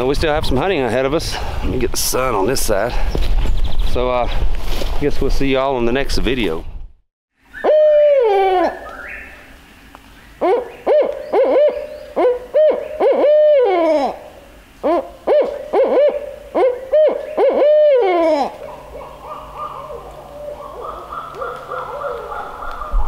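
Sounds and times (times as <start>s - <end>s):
owl hooting: 7.5s - 9.6s, 10.2s - 23.0s.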